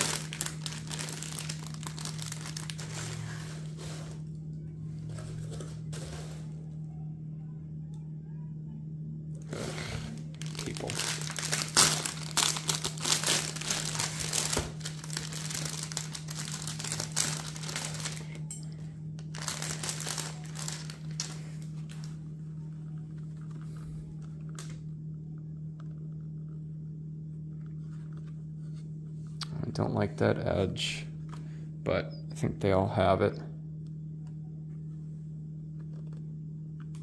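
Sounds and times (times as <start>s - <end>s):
plastic bag crinkling: 0.0s - 4.2s, 9.4s - 18.5s, 19.2s - 22.2s
steady low hum: 0.0s - 37.0s.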